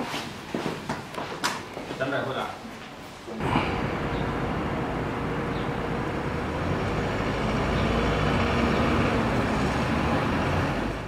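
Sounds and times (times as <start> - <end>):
road traffic rumble: 3.3 - 11.0.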